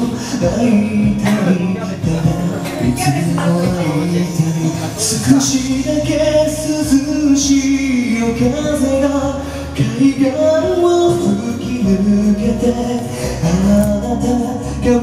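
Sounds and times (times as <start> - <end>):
man singing into microphone: 0.0 - 15.0
music backing track: 0.0 - 15.0.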